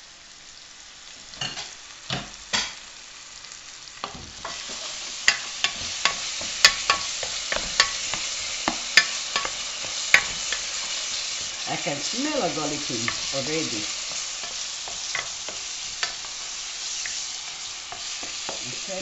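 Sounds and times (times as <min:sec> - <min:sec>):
vegetables sizzling in oil: 0:00.0 - 0:19.0.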